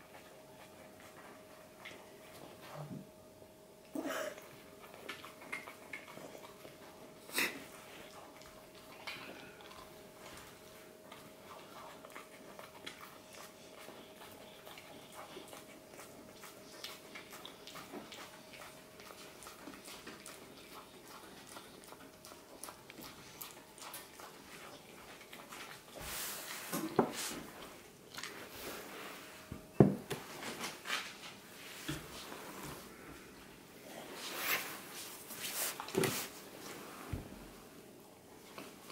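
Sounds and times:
puppy chewing and licking lips: 0.0 - 3.2, 3.8 - 28.8
faint steady hum: 0.0 - 38.9.

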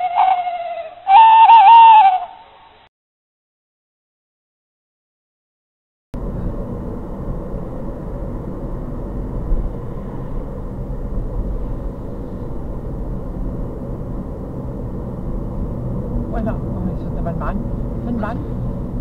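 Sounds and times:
car engine and tyre rumble: 6.2 - 19.0.

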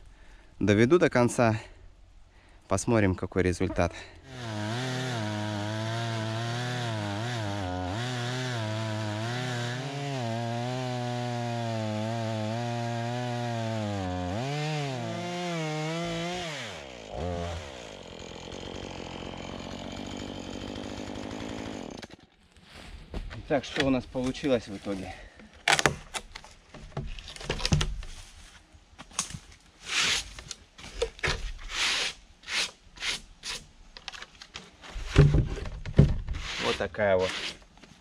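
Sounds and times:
chainsaw cutting wood: 4.2 - 22.3, 34.9 - 37.6.

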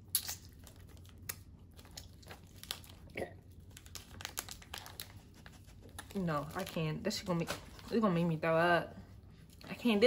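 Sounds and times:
plastic wrapper crinkling: 0.2 - 8.0.

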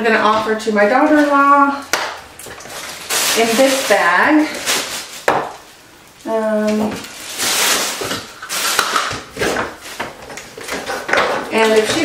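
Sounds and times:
bathroom items clattering: 0.0 - 12.0
bag rustling: 2.4 - 5.8, 6.5 - 12.0.

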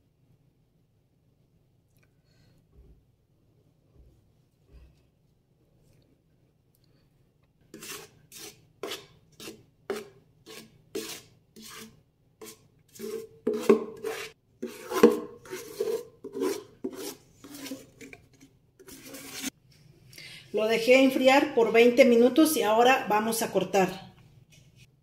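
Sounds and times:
utensil scraping metal pot: 7.7 - 19.6.

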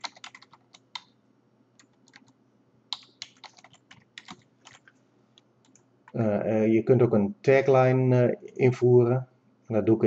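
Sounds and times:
typing on computer keyboard: 0.0 - 1.1, 1.8 - 2.3, 2.9 - 4.9.

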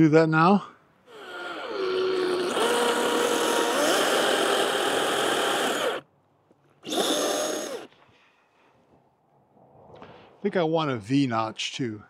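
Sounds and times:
chainsaw cutting log: 1.1 - 6.0, 6.8 - 7.9.

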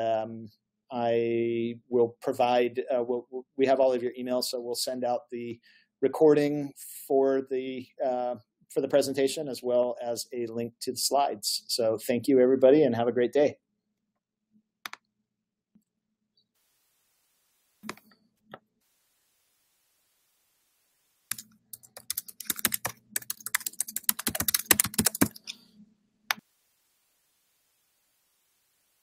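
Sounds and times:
computer keyboard typing: 21.3 - 25.6.

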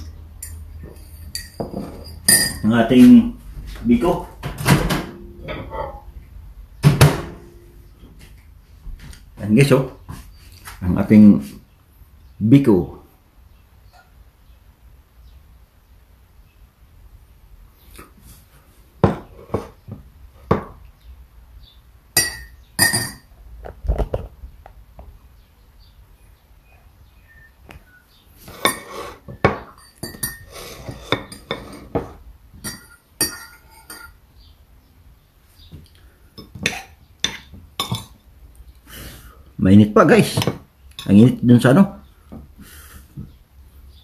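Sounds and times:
dishes and utensils clinking: 0.0 - 3.3, 4.5 - 6.1, 22.2 - 23.3, 28.4 - 34.2, 36.4 - 38.2.

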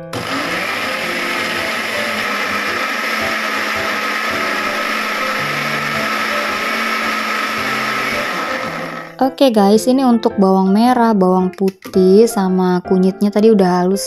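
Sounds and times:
blender motor grinding: 0.0 - 9.2.

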